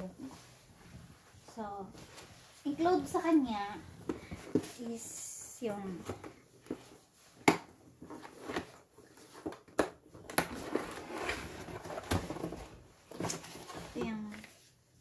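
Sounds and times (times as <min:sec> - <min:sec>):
cardboard scraping and rustling: 0:08.0 - 0:09.7, 0:10.3 - 0:14.5.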